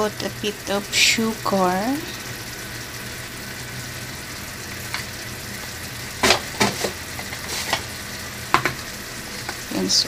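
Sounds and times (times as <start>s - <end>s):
sauce sizzling in a wok: 0.0s - 10.0s
metal spatula scraping pan: 6.2s - 7.9s.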